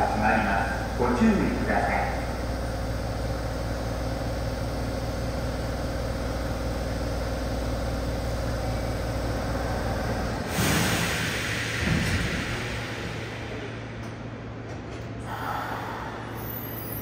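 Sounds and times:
train equipment low hum: 0.0s - 17.0s
loud hiss: 10.5s - 13.8s.

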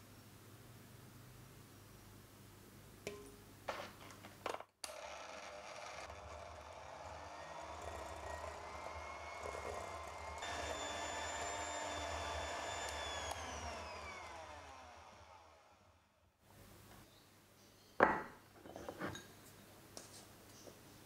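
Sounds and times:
electric hand mixer whine: 4.9s - 16.2s.

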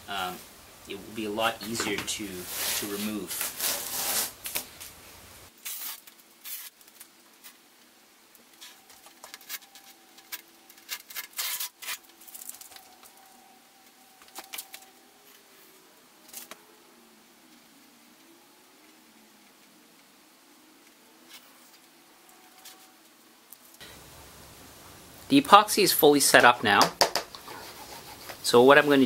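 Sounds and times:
tape peeling crackles: 2.4s - 5.0s, 5.6s - 7.6s, 8.4s - 15.4s, 16.2s - 16.6s.

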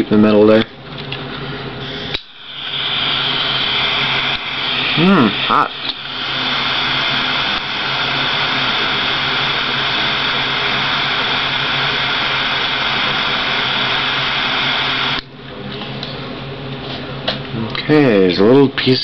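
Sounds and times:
jet lighter flame hissing: 1.8s - 15.3s.

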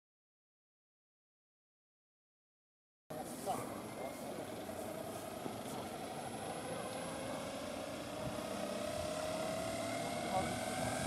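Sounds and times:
model helicopter whine: 3.1s - 11.0s.

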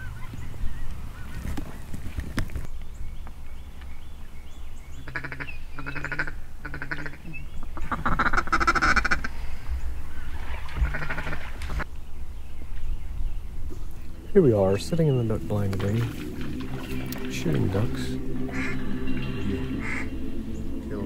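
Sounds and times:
duck call quacks: 5.1s - 7.2s, 7.8s - 9.3s, 10.8s - 11.4s, 18.5s - 18.8s, 19.7s - 20.2s.

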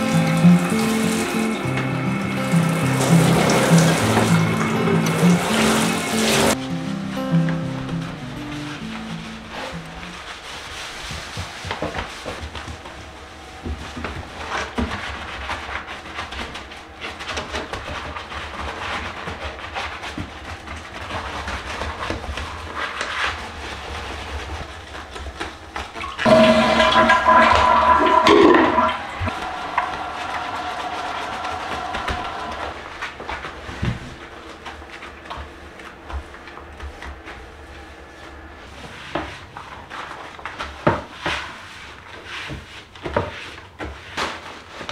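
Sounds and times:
toilet flushing: 0.0s - 6.6s, 24.0s - 42.4s
cloth scrubbing a toilet: 0.0s - 44.9s.

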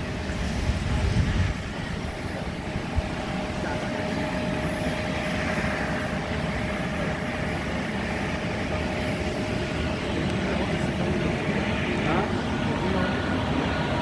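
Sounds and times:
faint jet whine: 0.0s - 14.0s
jet engines droning: 0.0s - 14.0s.

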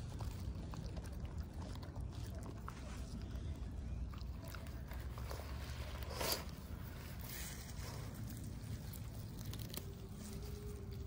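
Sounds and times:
low steady rumble: 0.0s - 11.0s
small crunches: 4.1s - 11.0s.

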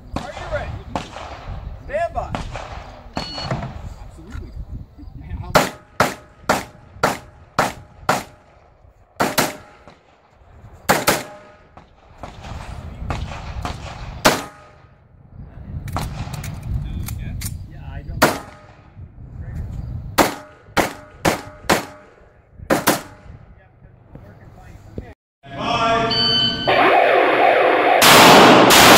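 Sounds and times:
pistol gunshots: 0.1s - 1.6s, 2.3s - 3.8s, 5.6s - 10.2s, 10.9s - 14.9s, 18.2s - 18.9s, 20.2s - 23.4s, 28.0s - 28.9s.

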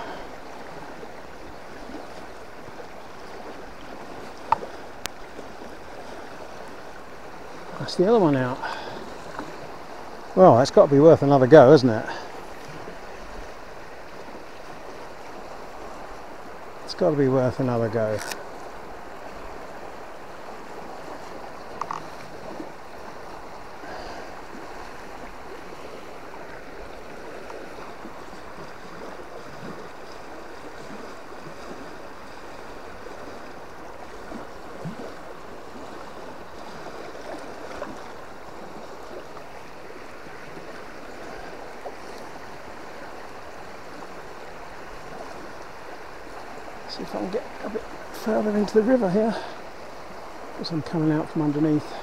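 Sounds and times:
river water rushing: 0.0s - 52.0s
faint clicks: 4.4s - 5.2s, 21.7s - 22.1s.

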